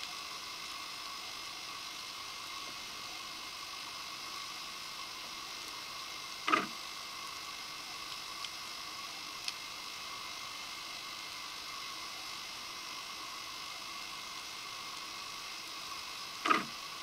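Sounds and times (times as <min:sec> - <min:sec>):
underwater hiss and hum: 0:00.0 - 0:17.0
faint ticks: 0:09.4 - 0:09.6, 0:15.9 - 0:16.8.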